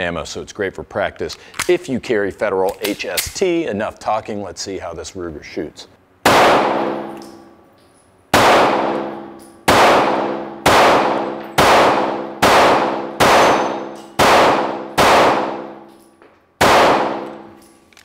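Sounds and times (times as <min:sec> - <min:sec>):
pistol shots echoing indoors: 0:06.2 - 0:07.6, 0:08.3 - 0:17.9.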